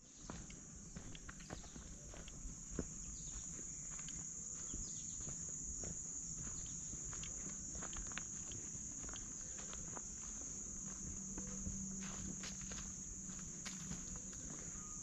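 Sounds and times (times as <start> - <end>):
insects chirping: 0.0 - 15.0
footsteps on trail: 0.1 - 15.0.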